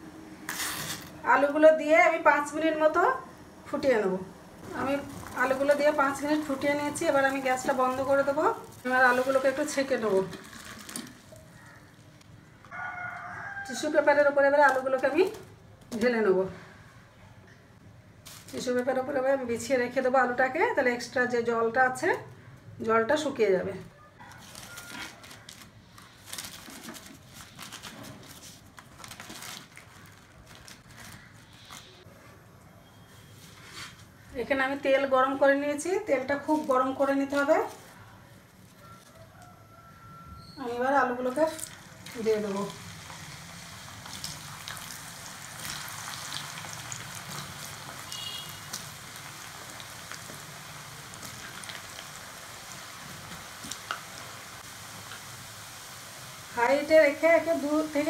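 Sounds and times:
potatoes sizzling in hot oil: 0:04.7 - 0:11.0, 0:41.0 - 0:58.0
paper towels rustling: 0:24.4 - 0:32.2.

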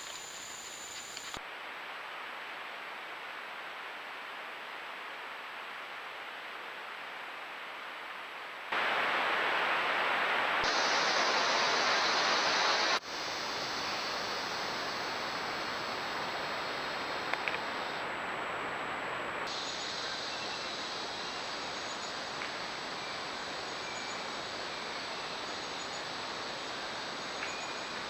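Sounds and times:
rainforest background: 0:00.0 - 0:28.0
steady recording hiss: 0:00.0 - 0:28.0.

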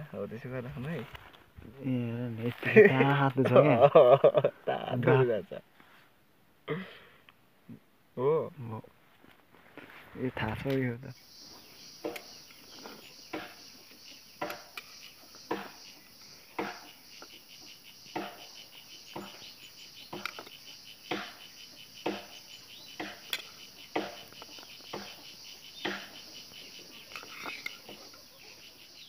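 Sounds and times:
insects chirring: 0:10.2 - 0:29.0
pulsing insect call: 0:11.1 - 0:29.0
sharp knocks: 0:13.3 - 0:13.6, 0:14.4 - 0:14.8, 0:15.5 - 0:17.0, 0:18.1 - 0:19.4, 0:21.1 - 0:21.4, 0:22.0 - 0:22.4, 0:23.0 - 0:25.2, 0:25.8 - 0:26.2.

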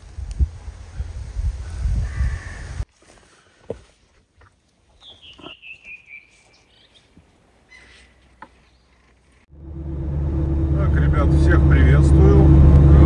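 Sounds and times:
songbird singing: 0:04.4 - 0:09.5
faint bird chirp: 0:04.9 - 0:09.5
low rumble: 0:09.5 - 0:13.0.

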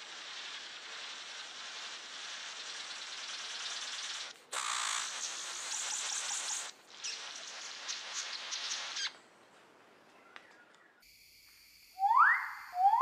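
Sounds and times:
bird hissing buzz like static: 0:00.0 - 0:09.1
bird rising whistled calls: 0:12.0 - 0:13.0.

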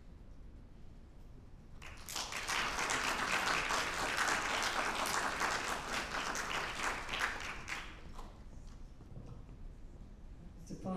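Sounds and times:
audience applauding: 0:01.8 - 0:08.2.

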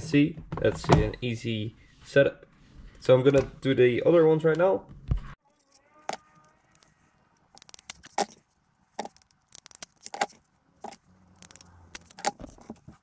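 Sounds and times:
metal terminals rattling: 0:05.5 - 0:12.9.

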